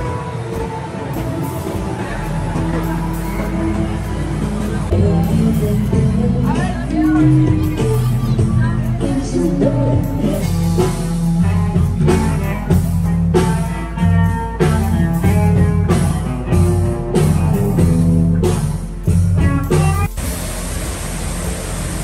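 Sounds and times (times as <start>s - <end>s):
drum kit beat: 0.0s - 22.0s
electric guitar: 0.0s - 22.0s
fountain water jets hissing: 20.1s - 22.0s.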